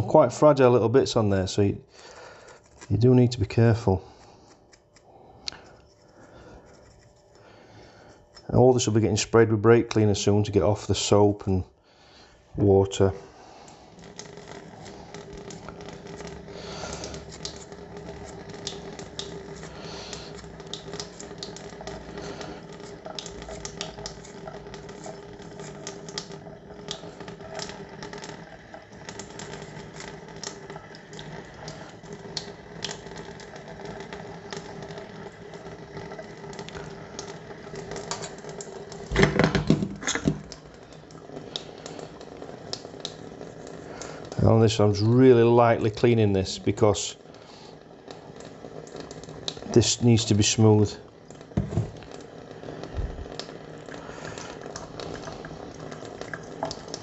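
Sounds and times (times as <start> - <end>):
tap water running into sink: 14.0 - 44.6, 47.2 - 57.0
knocks against sink: 51.6 - 52.0.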